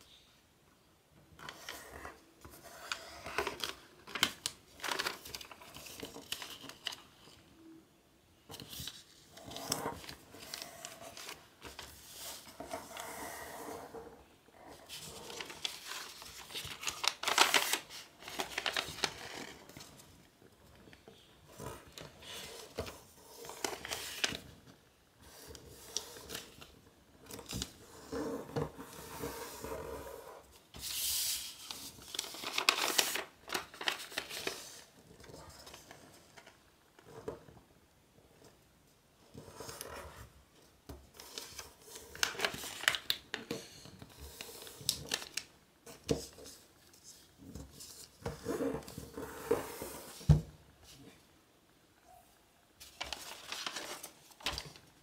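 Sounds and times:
paper rustling and crinkling: 1.4 - 7.4, 8.5 - 13.2, 14.6 - 24.7, 30.8 - 37.5, 41.2 - 51.2, 52.8 - 55.0.

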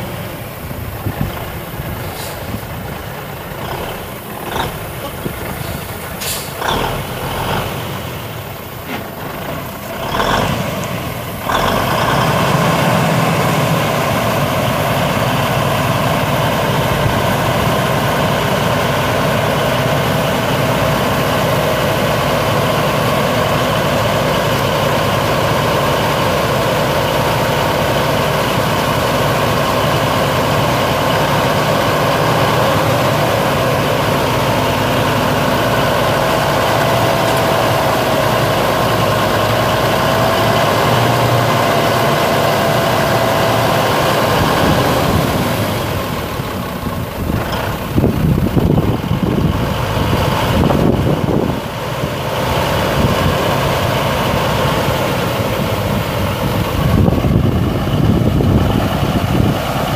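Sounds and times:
diesel truck engine idling: 0.0 - 59.9.

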